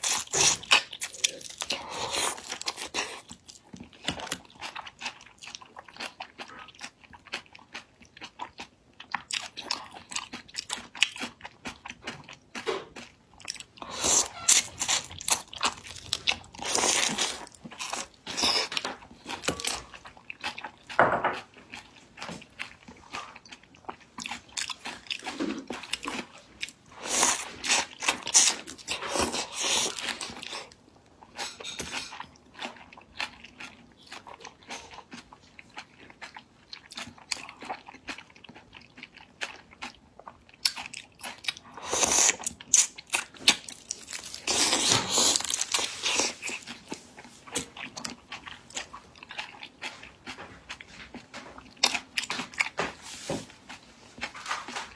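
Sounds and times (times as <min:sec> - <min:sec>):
wet crunching and chewing: 0:00.0 - 0:54.9.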